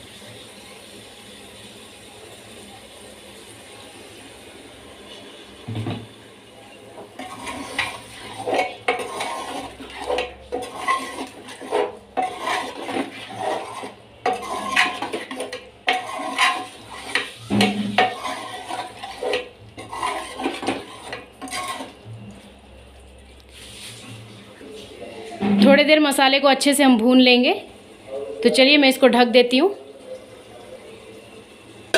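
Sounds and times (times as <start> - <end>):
food frying: 0.0 - 24.4
spoon scraping metal pot: 7.2 - 22.0.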